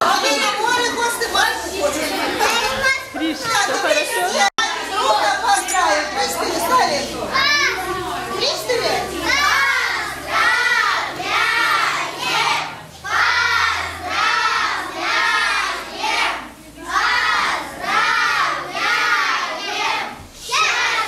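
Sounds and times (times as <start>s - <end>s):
children singing in unison: 8.9s - 21.0s.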